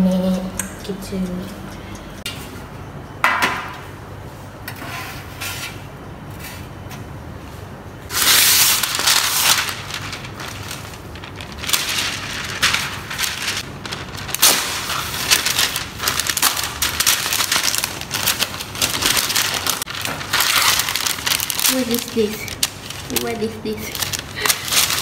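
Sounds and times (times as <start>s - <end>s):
baking paper crinkling: 8.1s - 25.0s
baking paper pulled off roll: 8.1s - 25.0s.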